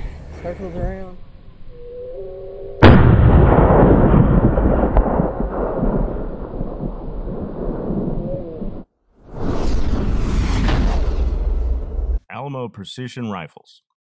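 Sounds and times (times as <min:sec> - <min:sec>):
rumbling echo roll: 0:01.2 - 0:12.2
rifle shot: 0:02.8 - 0:08.2.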